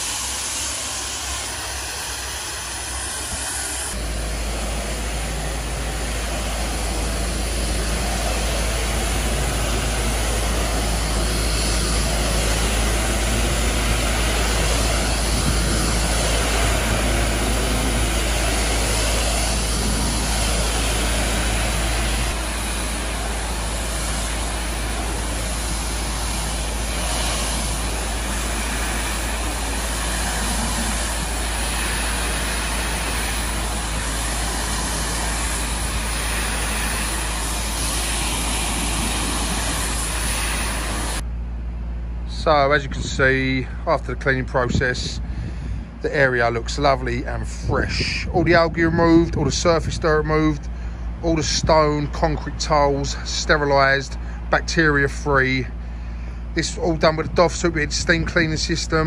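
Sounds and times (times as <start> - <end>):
steam jet hissing: 0.0 - 41.2
low machine rumble: 0.0 - 59.0.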